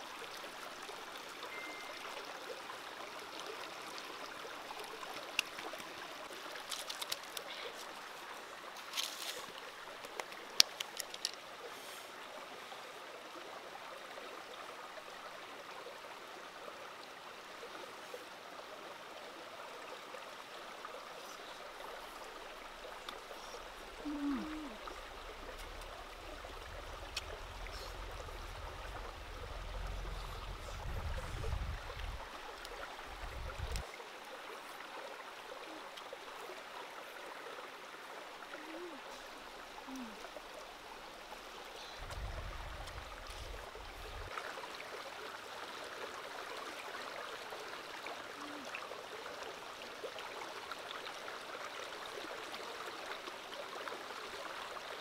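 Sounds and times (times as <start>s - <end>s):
stream over rocks: 0.0s - 55.0s
low rumble: 23.6s - 33.8s, 42.0s - 44.3s.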